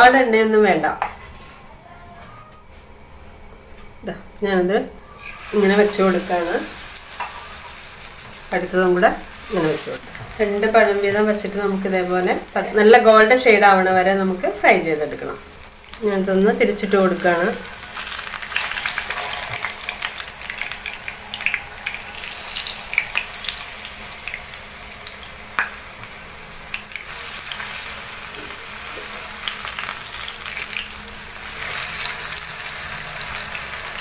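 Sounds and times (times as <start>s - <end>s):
frying sizzle with pops: 5.0s - 34.0s
utensils scraping a pan: 18.5s - 20.1s.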